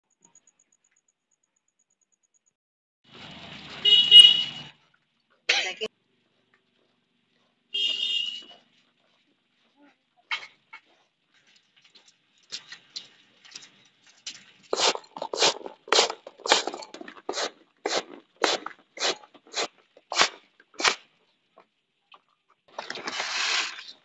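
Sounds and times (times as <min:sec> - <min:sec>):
rice rattling in bamboo basket: 0:14.4 - 0:21.0.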